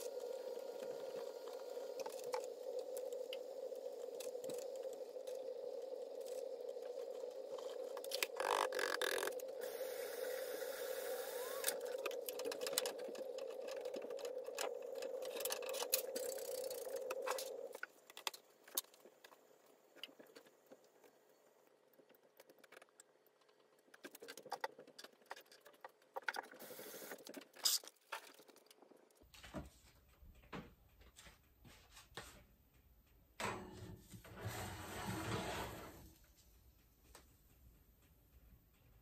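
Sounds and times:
gas burner humming: 0.0 - 17.8.

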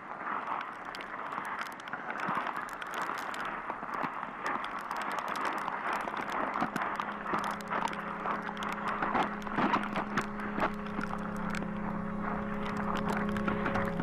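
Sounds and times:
ice pellets ticking on ground: 0.0 - 14.0
low musical drone: 4.7 - 14.0.

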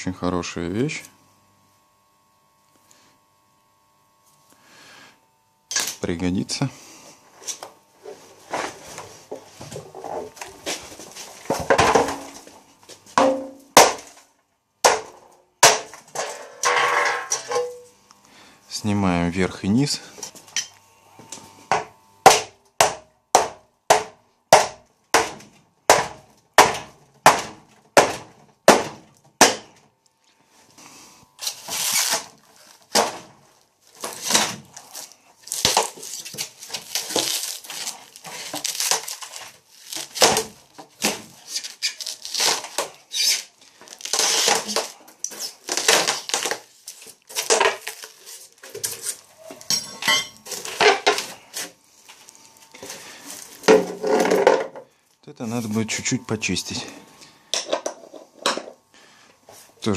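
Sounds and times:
crunching scraping and tearing: 31.4 - 33.0, 33.8 - 49.7.

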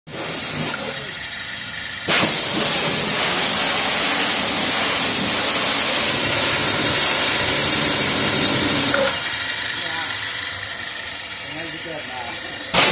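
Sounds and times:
high-pressure water jet hissing: 0.1 - 11.8, 12.6 - 12.9.

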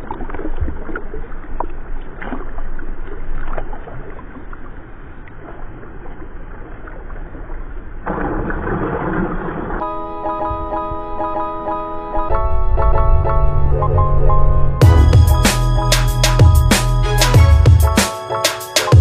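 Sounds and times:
pool water sloshing: 0.0 - 9.8
swimmer splashing: 8.1 - 9.8
plucked-string music: 9.8 - 19.0.

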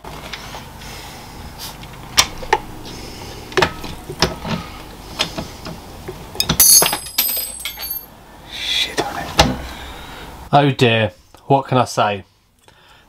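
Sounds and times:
loud metal clatter with ringing: 6.5 - 8.1.

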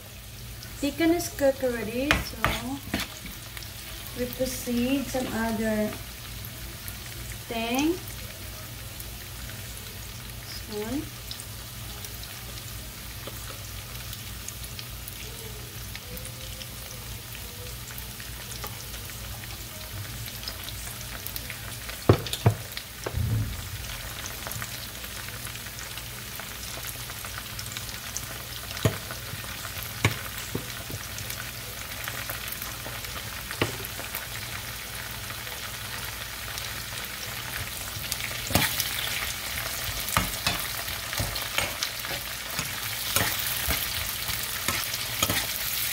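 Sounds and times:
vegetables sizzling in oil: 0.0 - 45.9.

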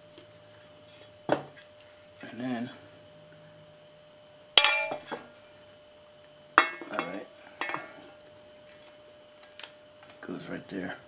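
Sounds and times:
metal plate clinking: 4.6 - 5.1, 6.6 - 7.8.

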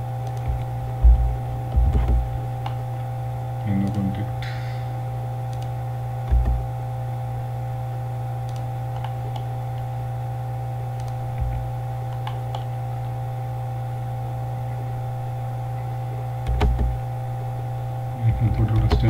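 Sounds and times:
steady electrical hum: 0.0 - 19.0
computer mouse and keyboard clicks: 0.2 - 0.7, 3.7 - 4.2, 5.5 - 5.7, 6.3 - 6.6, 8.5 - 9.5, 11.0 - 12.7, 16.4 - 16.9, 18.6 - 19.0
soft low thump: 0.5 - 2.3.

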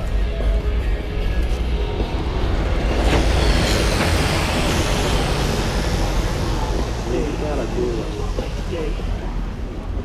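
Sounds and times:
steady low traffic rumble: 0.0 - 10.0
vehicle passing by: 1.8 - 9.7.

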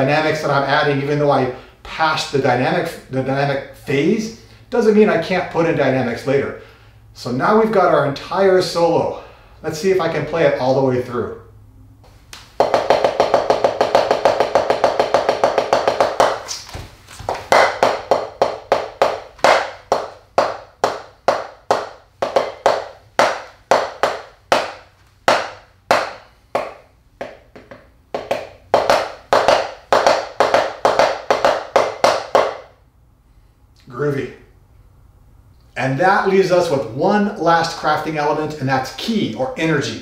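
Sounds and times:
drum sticks striking practice pad: 12.5 - 16.7, 17.3 - 32.7.

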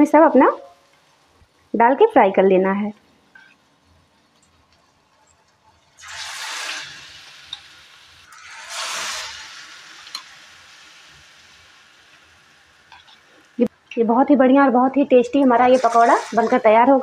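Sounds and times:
hot oil sizzling: 0.0 - 13.8, 14.6 - 17.0.

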